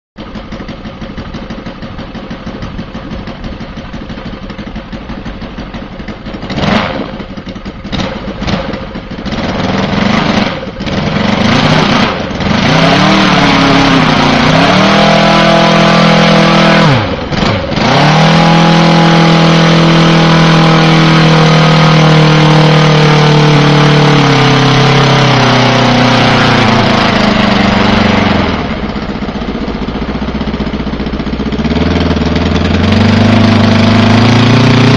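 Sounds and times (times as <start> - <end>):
model aircraft engine running: 9.3 - 34.3.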